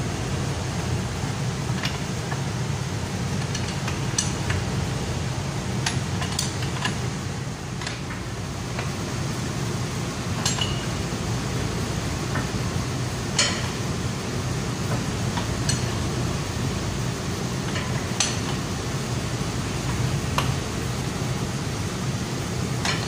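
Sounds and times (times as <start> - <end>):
steady low hum: 0.0 - 23.0
wrenches clinking on bolts: 10.4 - 11.0.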